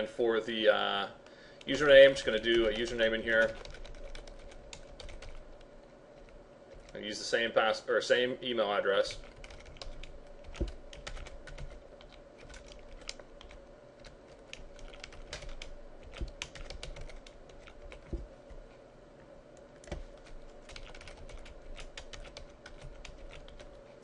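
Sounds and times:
faint steady hum: 0:00.0 - 0:24.0
typing on computer keyboard: 0:01.6 - 0:05.6, 0:09.1 - 0:18.2, 0:19.8 - 0:23.8.

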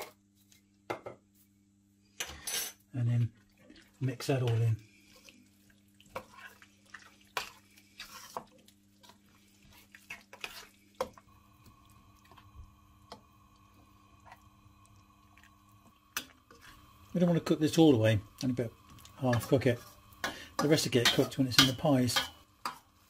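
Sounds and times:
faint steady hum: 0:00.0 - 0:23.0
spoon stirring wet mince: 0:03.0 - 0:23.0
spoon scraping and tapping pan: 0:10.0 - 0:11.2, 0:18.9 - 0:22.9.

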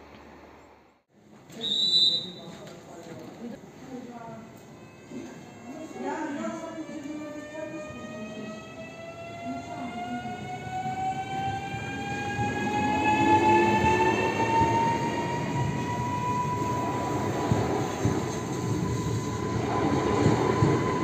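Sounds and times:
train wheels rumbling: 0:09.5 - 0:21.0.

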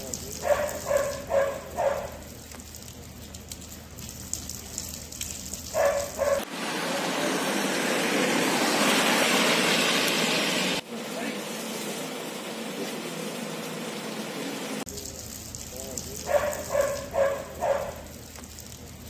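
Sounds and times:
dog barking: 0:00.4 - 0:02.3, 0:05.7 - 0:06.5, 0:16.2 - 0:18.1.

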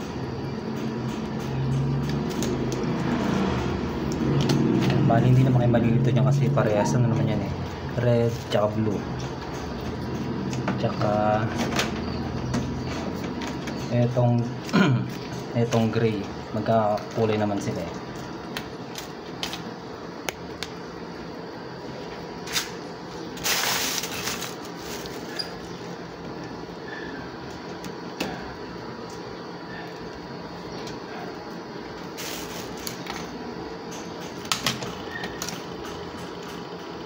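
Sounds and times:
steady background hum: 0:00.0 - 0:37.0
scraping rustle: 0:23.4 - 0:25.6.

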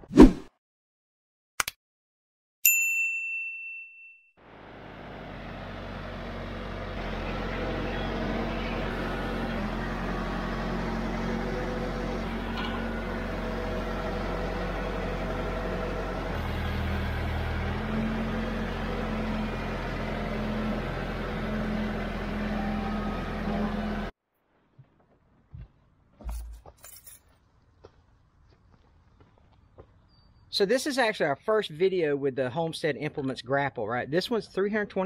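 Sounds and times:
tractor diesel engine idling: 0:04.4 - 0:24.1.

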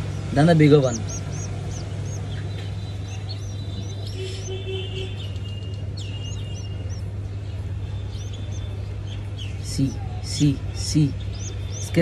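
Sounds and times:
steady low hum: 0:00.0 - 0:04.7
baby birds peeping: 0:00.0 - 0:12.0.

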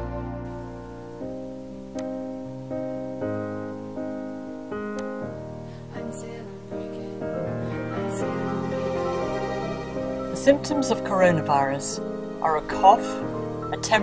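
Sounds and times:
slow gentle piano music: 0:00.0 - 0:14.0.

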